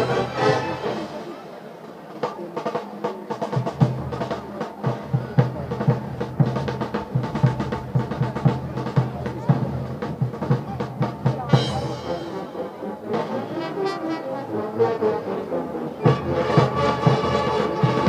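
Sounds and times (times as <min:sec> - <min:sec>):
brass band chord: 0:00.0 - 0:01.6, 0:11.5 - 0:18.0
drums beating march rhythm: 0:00.0 - 0:18.0.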